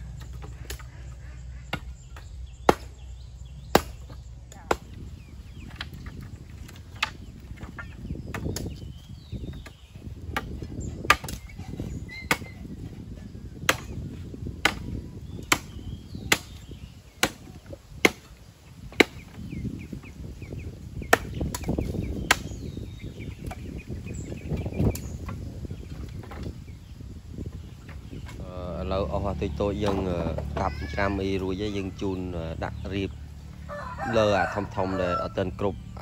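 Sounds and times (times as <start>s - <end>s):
blade chopping into wood: 3.7s - 5.0s, 14.6s - 17.4s, 18.0s - 18.3s, 21.1s - 22.6s.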